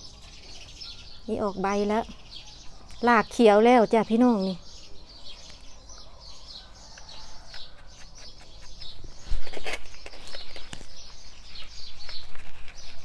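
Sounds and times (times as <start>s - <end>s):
small birds chirping: 0.0s - 13.0s
hands rustling potting soil: 7.4s - 13.0s.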